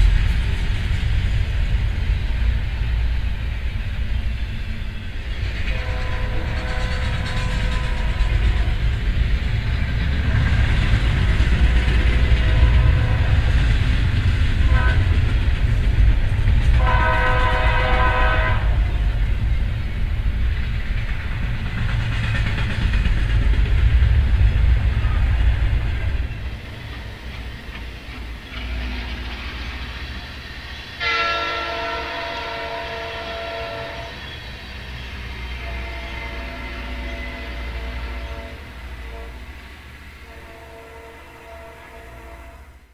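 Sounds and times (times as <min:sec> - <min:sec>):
freight cars rumbling and clattering: 0:00.0 - 0:31.0
rail grinder train passing: 0:00.0 - 0:42.9
train horn: 0:05.6 - 0:09.1, 0:10.2 - 0:15.6, 0:16.7 - 0:19.2, 0:28.5 - 0:29.6, 0:31.0 - 0:42.9.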